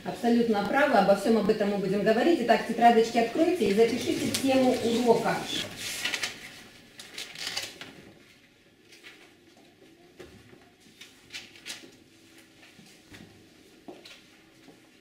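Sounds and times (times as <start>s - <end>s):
paper rustling: 3.6s - 9.4s.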